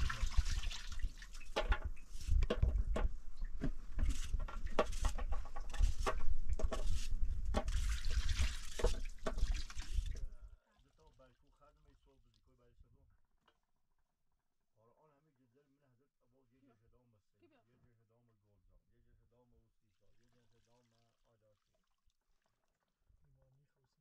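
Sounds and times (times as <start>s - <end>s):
water sloshing and splashing: 0.0s - 10.4s.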